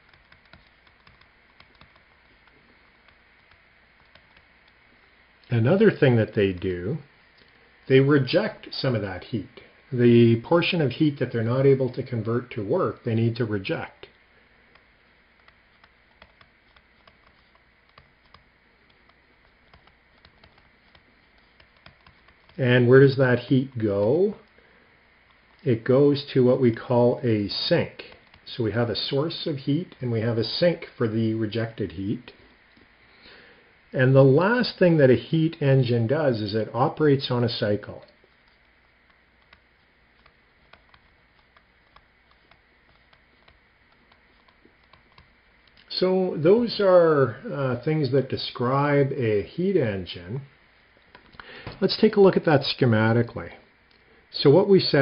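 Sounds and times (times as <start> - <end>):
stylus scratching on tablet screen: 0.0 - 9.0, 10.1 - 30.6, 36.2 - 45.8.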